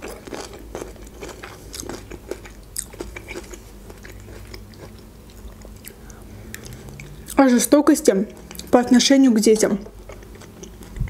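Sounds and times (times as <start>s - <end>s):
crisp chewing crunches: 0.0s - 7.4s, 10.0s - 11.0s.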